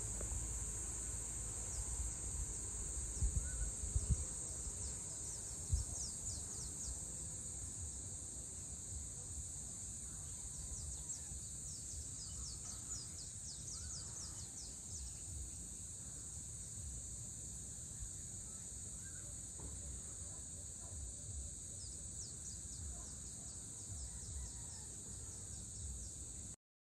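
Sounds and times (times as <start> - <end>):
insects high-pitched drone: 0.0 - 26.6.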